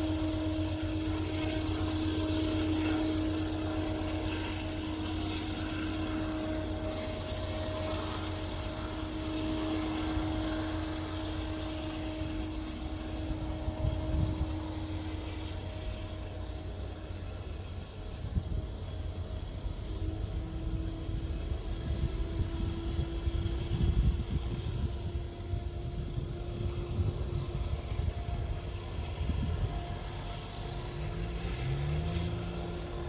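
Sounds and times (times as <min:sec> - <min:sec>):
locomotive engine drone: 0:00.0 - 0:33.0.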